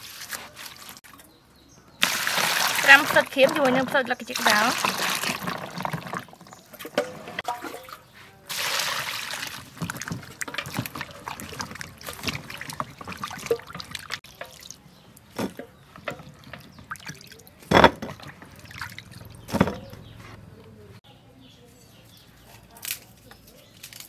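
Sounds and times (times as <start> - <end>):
hands sloshing vegetables in water: 0.0 - 1.3, 2.0 - 19.8
water pouring into plastic bowl: 2.0 - 14.8.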